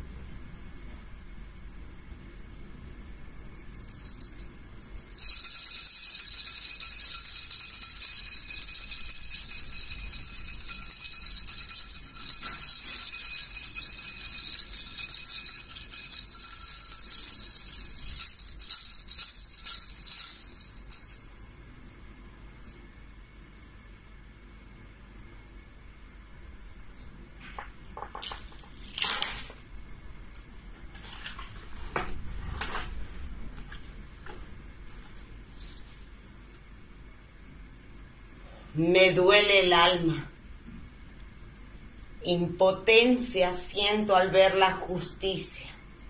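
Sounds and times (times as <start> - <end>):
small bells jingling: 3.4 - 21.4.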